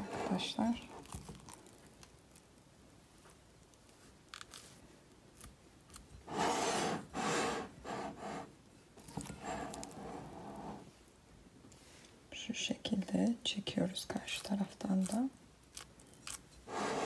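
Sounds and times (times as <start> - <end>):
sticky dough rubbing and tearing: 0.2 - 6.6, 9.2 - 10.9, 14.2 - 16.9.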